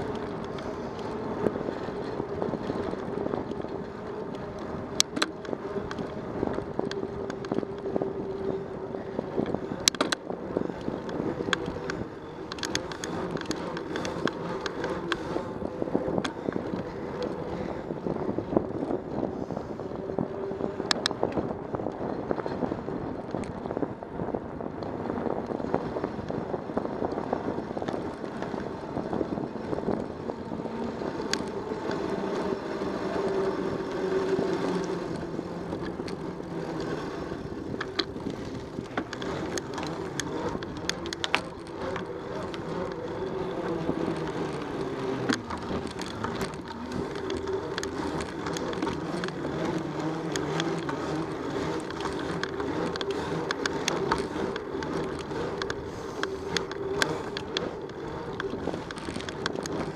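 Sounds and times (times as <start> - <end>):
clicks and rattles from bumps: 0.0 - 8.6, 9.2 - 19.2, 24.7 - 59.9
bicycle tyre and wind noise: 0.0 - 59.9
wavering hum: 0.0 - 59.9.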